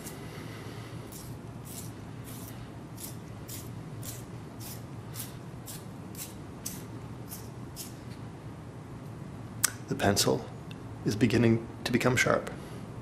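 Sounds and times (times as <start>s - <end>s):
pencil sharpener shaving wood: 1.1s - 7.9s.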